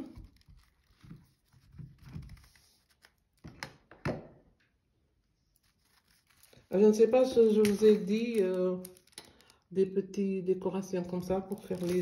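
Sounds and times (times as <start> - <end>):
rice rustling in a sock: 5.6 - 7.0.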